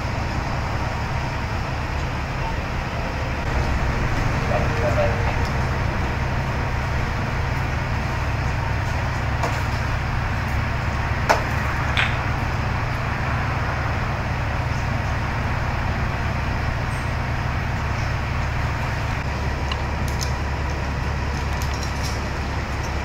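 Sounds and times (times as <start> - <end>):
large engine droning: 0.0 - 23.0
sharp knock: 11.3 - 12.4.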